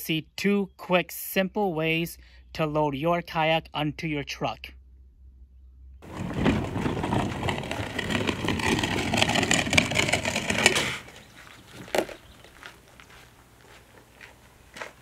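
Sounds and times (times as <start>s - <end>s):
kayak hull scraping over gravel: 6.0s - 13.1s.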